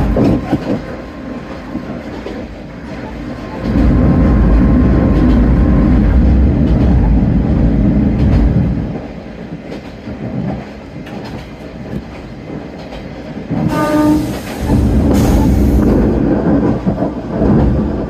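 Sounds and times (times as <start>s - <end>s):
train wheels clicking on rail joints: 0.0s - 18.0s
diesel railcar engine droning: 2.4s - 9.0s, 13.7s - 18.0s.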